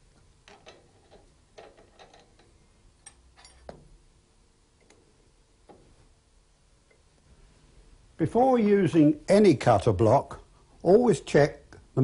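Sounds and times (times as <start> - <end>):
metallic clicks of steel rings: 0.5 - 3.8.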